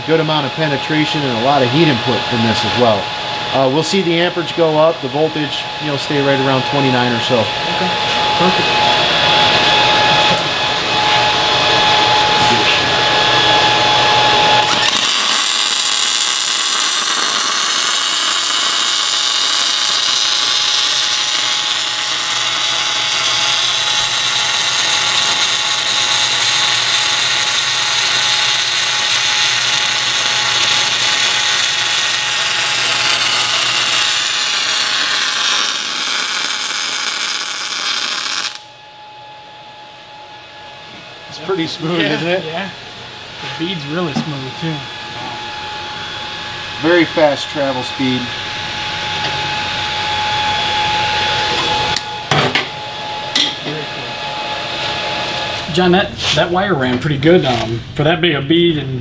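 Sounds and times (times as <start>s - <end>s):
welding arc hissing: 14.5s - 38.7s.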